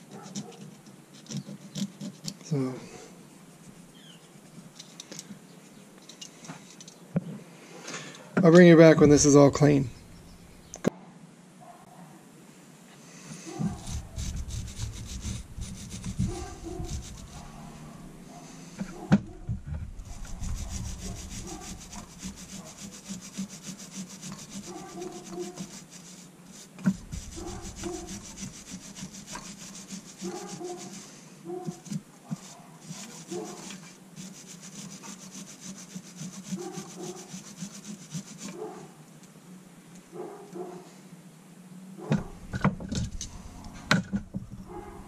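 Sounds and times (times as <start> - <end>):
hand tool scraping metal: 0.1 - 2.4, 13.5 - 19.0, 19.6 - 38.8
steady low hum: 9.1 - 10.8, 13.6 - 31.0, 42.1 - 45.0.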